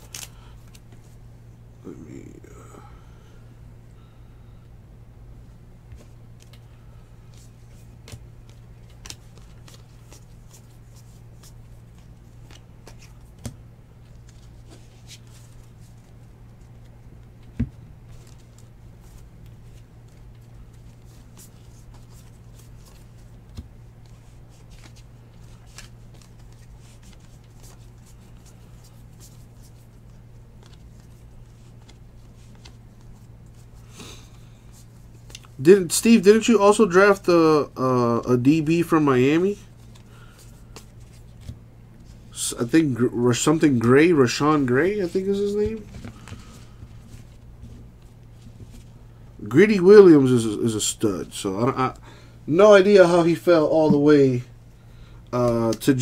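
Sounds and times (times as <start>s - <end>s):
cards clicking and sliding: 0.0s - 1.0s, 6.0s - 15.6s.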